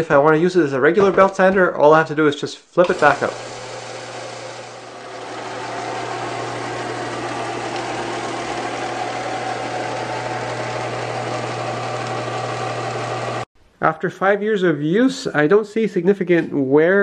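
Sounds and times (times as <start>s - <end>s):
electric motor hum: 2.8s - 13.5s
sanding belt rushing over rollers: 2.8s - 13.5s.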